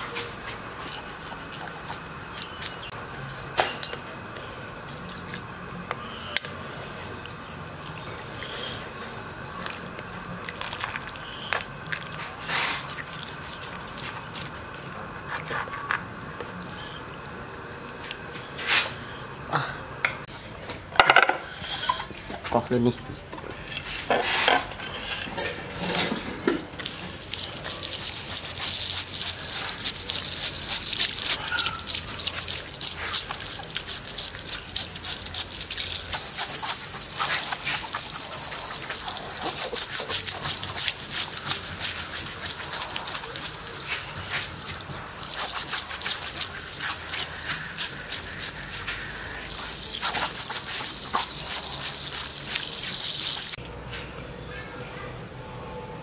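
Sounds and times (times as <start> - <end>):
water splashing and trickling: 26.8 - 53.6.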